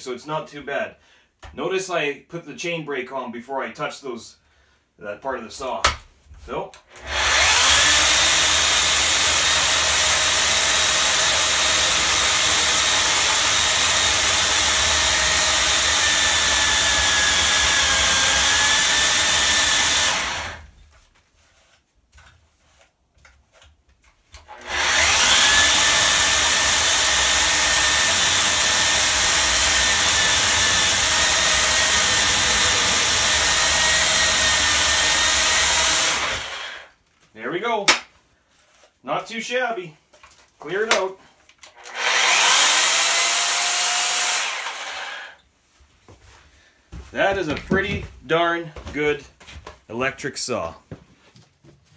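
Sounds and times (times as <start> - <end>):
electric chainsaw ripping a log: 7.0 - 20.8, 24.5 - 36.9, 41.8 - 45.4.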